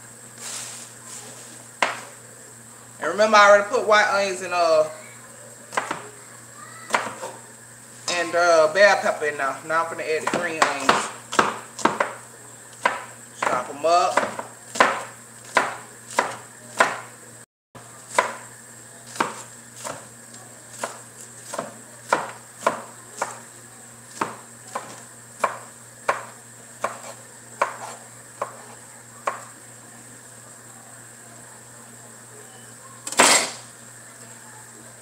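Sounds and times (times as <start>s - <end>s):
knife chopping on cutting board: 1.8s - 2.1s, 5.7s - 6.0s, 6.9s - 7.4s, 10.2s - 12.2s, 12.8s - 17.1s, 18.1s - 18.5s, 19.1s - 20.1s, 20.7s - 23.4s, 24.1s - 29.5s, 33.1s - 33.6s.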